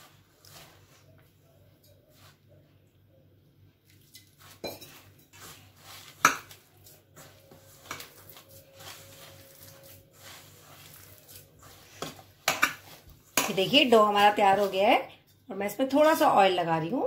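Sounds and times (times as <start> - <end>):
hand kneading dough in bowl: 0.0 - 1.4, 4.2 - 15.0.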